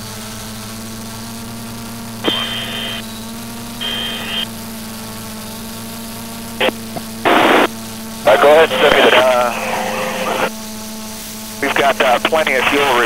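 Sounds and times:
radio noise bursts: 2.2s - 4.5s, 6.6s - 10.5s, 11.6s - 13.0s
radio channel low hum: 2.2s - 5.2s, 5.8s - 10.5s, 11.5s - 13.0s.

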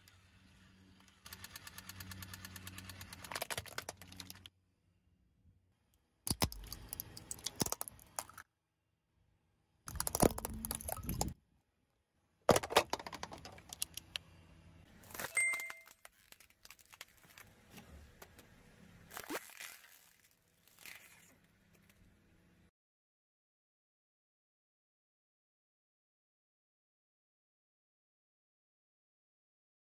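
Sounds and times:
car tyre crushing small objects: 9.9s - 11.4s, 15.0s - 17.7s.

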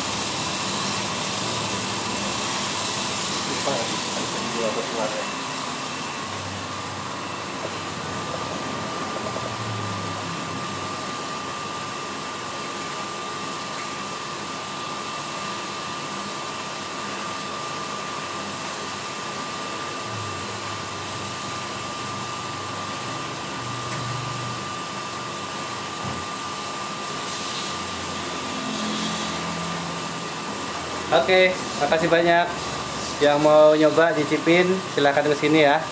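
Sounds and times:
fan rushing air: 0.0s - 35.9s.

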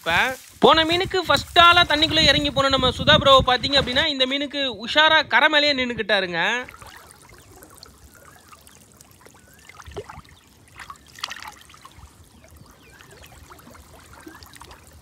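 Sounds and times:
water trickling and splashing: 6.4s - 15.0s.

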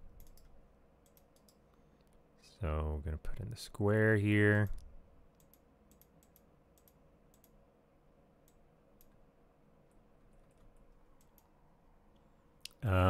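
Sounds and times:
low steady hum: 0.0s - 13.0s
computer mouse clicks: 0.1s - 2.2s, 4.8s - 7.6s, 8.4s - 9.2s, 10.4s - 11.6s.

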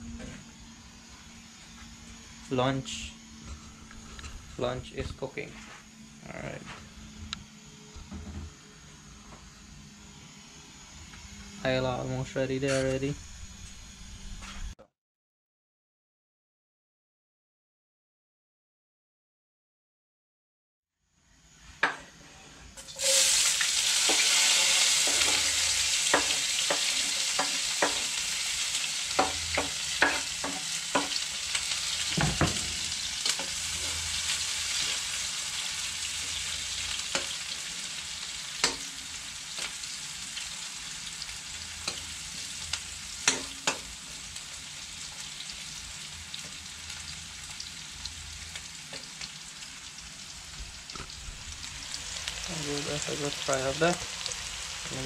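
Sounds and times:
onion sizzling in hot oil: 22.7s - 55.0s.

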